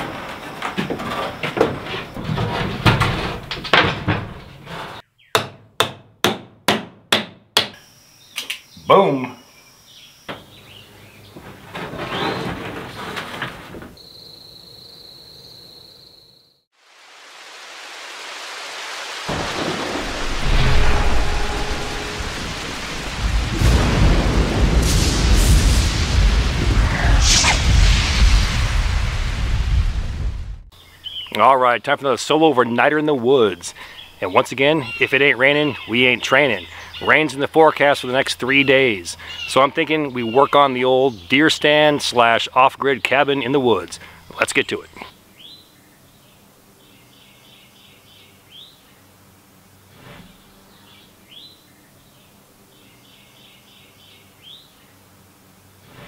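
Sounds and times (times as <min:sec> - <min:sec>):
wood framing clattering: 0:00.0 - 0:05.0, 0:11.3 - 0:14.0
hammer driving a nail into wood: 0:05.4 - 0:07.8
rain hiss: 0:16.7 - 0:32.4, 0:33.5 - 0:35.4, 0:43.8 - 0:46.9
rolling thunder: 0:19.3 - 0:30.7.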